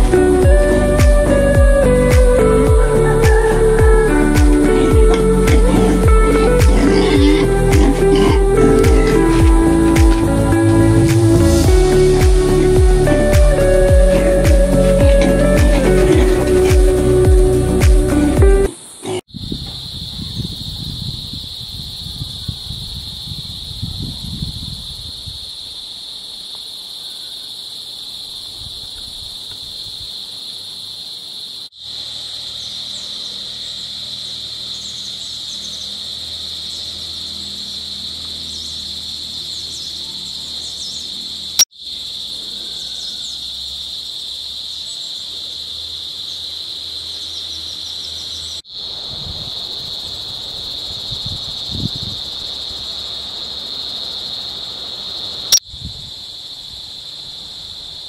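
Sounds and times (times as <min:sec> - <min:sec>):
crickets chirring: 0:00.0 - 0:58.0.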